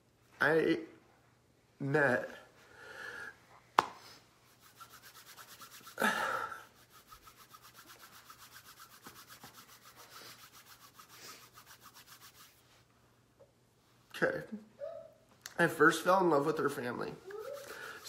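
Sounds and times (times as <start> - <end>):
hands rubbing together: 3.8 - 12.8, 17.3 - 18.0
breathy sniff: 9.9 - 11.7, 17.5 - 18.0.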